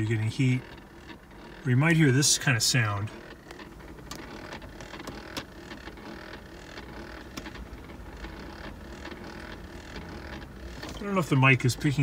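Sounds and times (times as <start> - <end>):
step motor clicking: 0.5 - 12.0.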